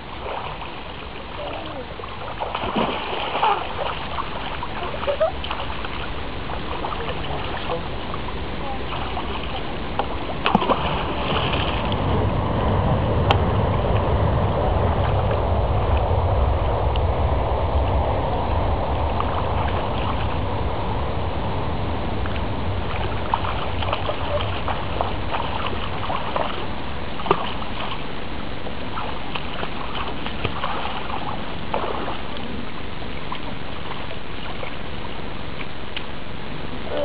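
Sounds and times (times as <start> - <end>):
feet splashing in shallow water: 0.0 - 12.8, 22.3 - 36.3
low rumble: 0.0 - 37.0.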